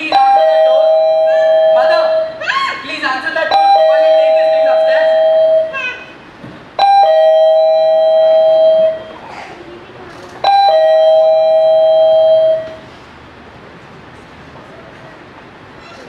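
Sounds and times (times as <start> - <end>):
two-tone doorbell chime: 0.0 - 2.3, 3.5 - 5.8, 6.8 - 9.2, 10.4 - 12.8.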